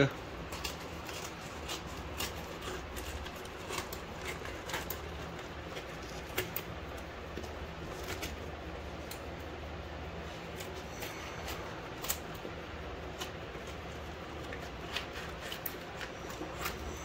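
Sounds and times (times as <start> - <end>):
steady low hum: 0.0 - 17.0
scissors snipping tape and paper: 0.5 - 7.0, 10.5 - 12.5, 13.1 - 17.0.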